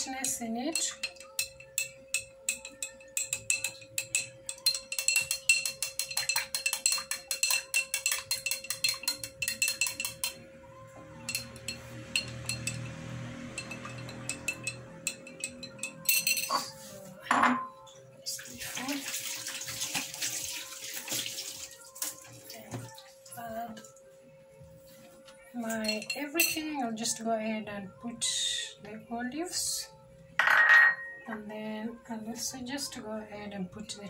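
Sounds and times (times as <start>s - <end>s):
spoon clinking against glass: 0.0s - 10.4s, 11.2s - 17.8s, 25.6s - 26.8s, 30.4s - 31.4s.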